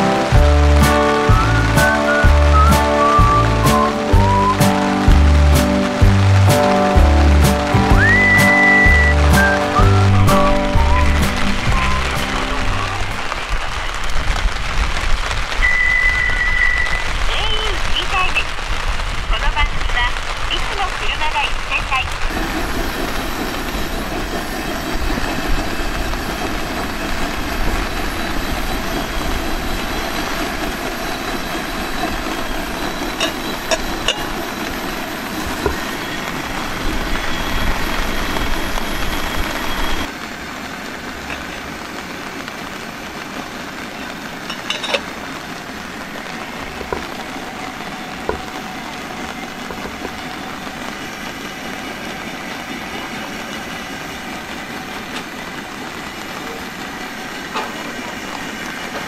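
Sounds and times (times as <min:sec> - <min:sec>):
heavy rain: 0:00.0 - 0:59.0.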